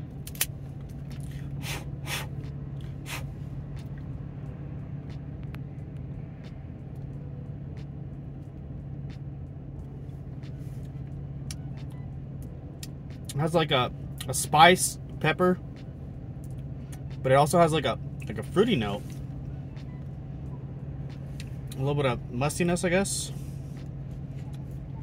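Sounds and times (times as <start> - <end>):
car engine hum from cabin: 0.0 - 25.0
short airy sounds: 1.2 - 3.6.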